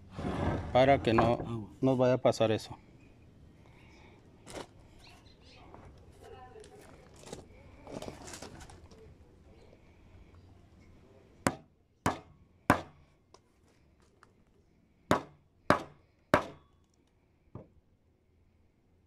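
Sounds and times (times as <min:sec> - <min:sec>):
hammer striking chisel into wood: 0:11.5 - 0:13.0, 0:15.1 - 0:16.6.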